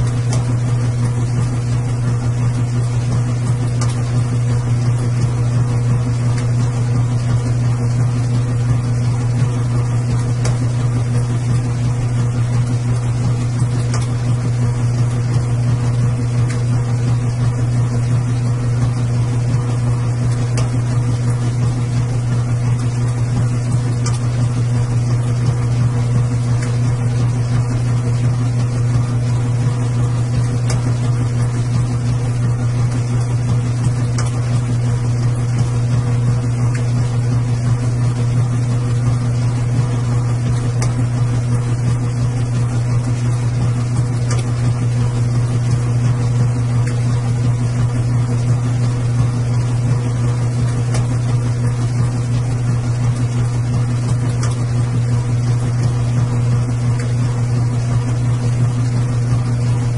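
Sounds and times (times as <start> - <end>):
washing machine humming: 0.0 - 59.9.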